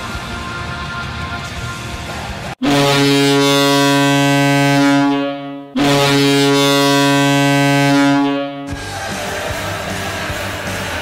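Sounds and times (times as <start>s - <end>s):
deep goal horn blasts: 2.6s - 8.8s.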